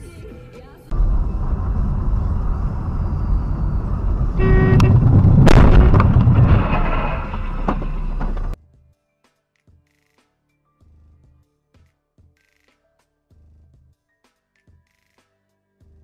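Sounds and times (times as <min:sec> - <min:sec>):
car crash: 0:00.9 - 0:08.6
car engine and road noise: 0:00.9 - 0:08.6
car horn blast: 0:01.0 - 0:08.5
metal crunching and scraping: 0:03.8 - 0:08.6.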